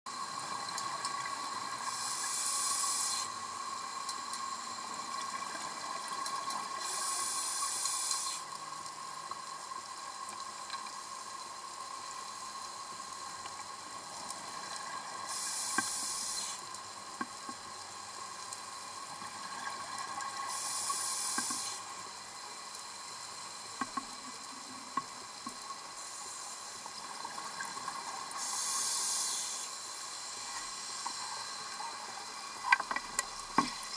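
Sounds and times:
faint steady hum: 0:00.1 - 0:33.9
regulator bubbling hiss: 0:00.1 - 0:33.9
faint clicks: 0:07.6 - 0:09.6, 0:13.4 - 0:17.7, 0:18.4 - 0:21.8, 0:32.4 - 0:33.8.

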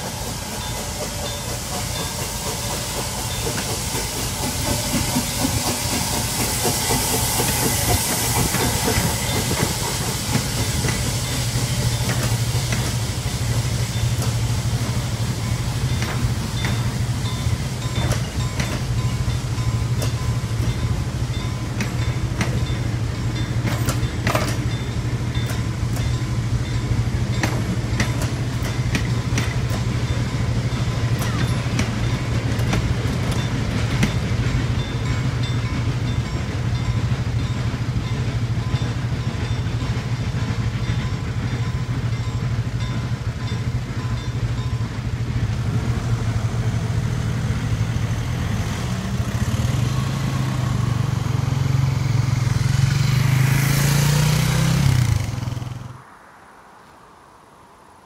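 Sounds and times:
train wheels clicking over rail joints: 0:00.0 - 0:55.9
car pulling away: 0:50.2 - 0:56.0.

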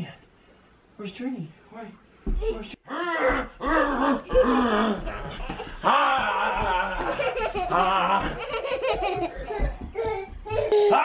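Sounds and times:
children laughing: 0:03.2 - 0:11.0
man laughing: 0:03.7 - 0:09.8.

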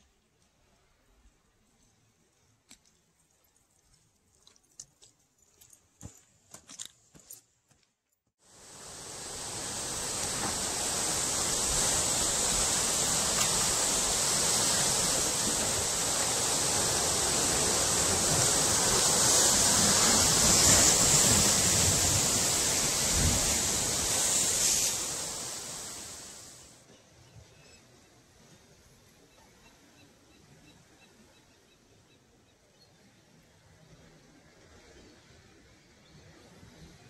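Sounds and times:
ocean surf rushing: 0:08.5 - 0:26.7.

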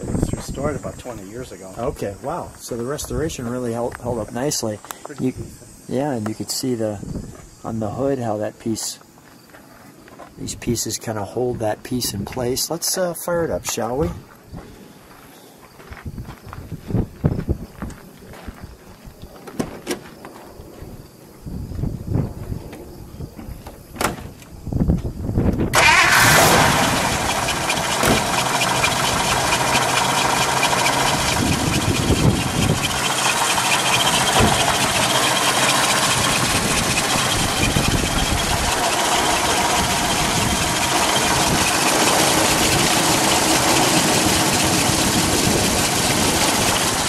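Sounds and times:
engine starter cranking: 0:25.7 - 0:47.0
car engine revving and idling: 0:25.8 - 0:47.0.

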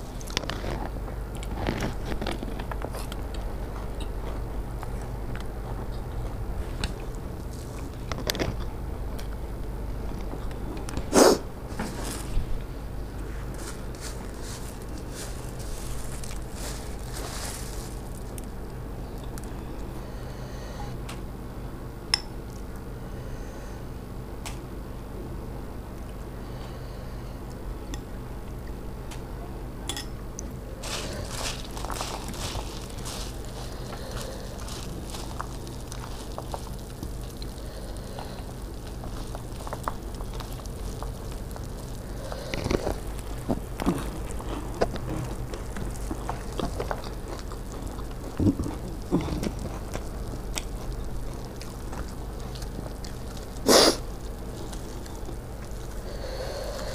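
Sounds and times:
chewing crunches: 0:00.0 - 0:12.4, 0:13.4 - 0:20.4, 0:30.4 - 0:56.9
steady low hum: 0:00.0 - 0:56.9
puffed rice rustling by hand: 0:11.1 - 0:12.5, 0:13.2 - 0:18.8, 0:30.8 - 0:56.9
food mixed by hand on steel plate: 0:30.8 - 0:42.0.

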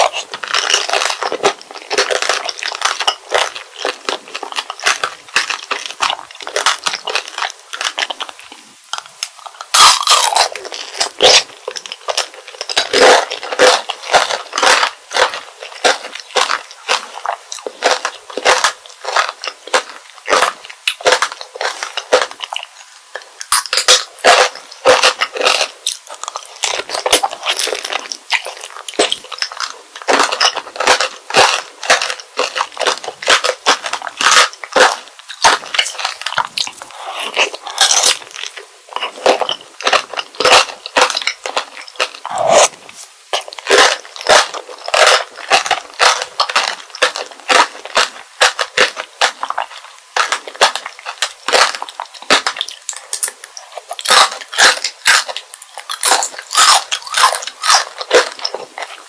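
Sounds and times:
crunching and chewing candy shell: 0:00.0 - 0:59.0.

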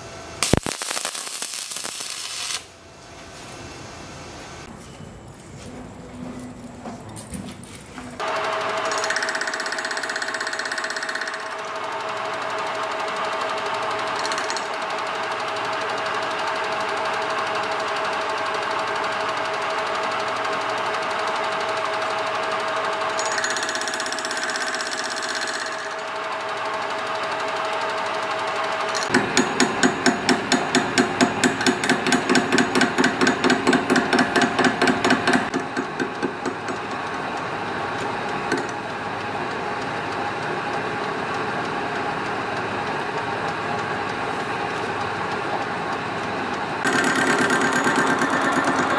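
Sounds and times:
metal lathe whining: 0:08.2 - 0:18.0, 0:18.7 - 0:33.3, 0:46.8 - 0:48.9
rapid regular knocking: 0:46.8 - 0:48.9.

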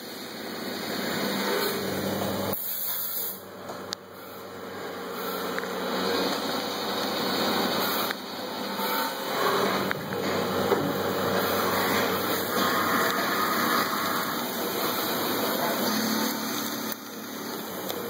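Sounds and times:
lathe spindle whir and cutting hiss: 0:00.0 - 0:18.0.

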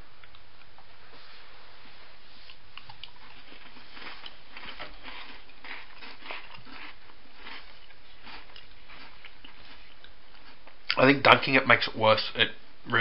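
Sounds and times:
person chewing: 0:02.4 - 0:11.0.

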